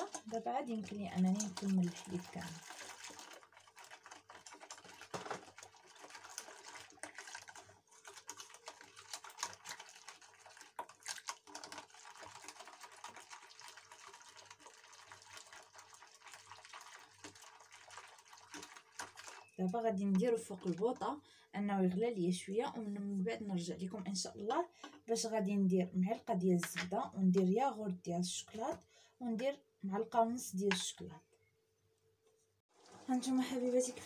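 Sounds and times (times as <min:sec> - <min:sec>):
milk pouring: 0:00.0 - 0:21.0
liquid sloshing: 0:00.0 - 0:21.2.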